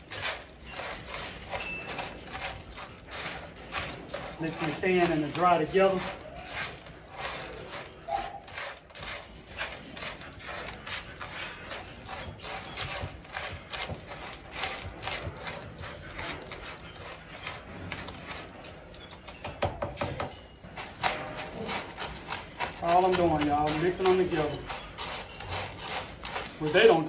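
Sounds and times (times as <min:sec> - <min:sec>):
spoon stirring in feed pan: 0:00.0 - 0:18.5, 0:19.3 - 0:27.0.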